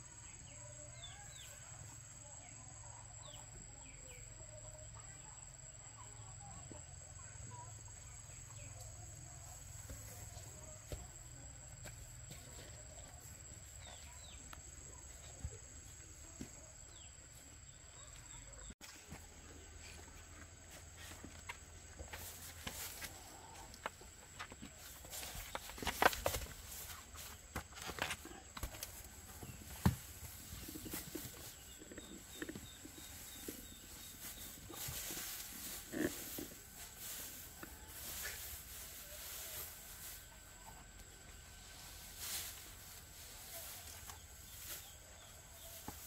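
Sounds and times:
small birds chirping: 21.0s - 46.0s.

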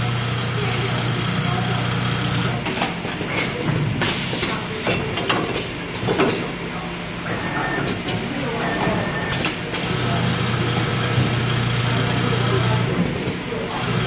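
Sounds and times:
pneumatic machine clacks and knocks: 2.6s - 6.5s.

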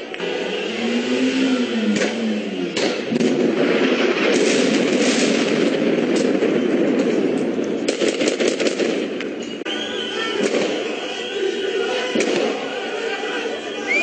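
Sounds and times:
loud rushing noise: 0.0s - 7.0s
gunshots: 1.7s - 9.4s, 10.4s - 11.1s, 11.9s - 13.0s.

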